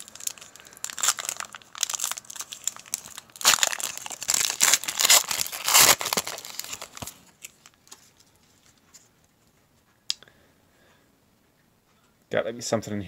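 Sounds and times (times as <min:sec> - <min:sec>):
foil wrapper tearing and crinkling: 0:00.0 - 0:08.0.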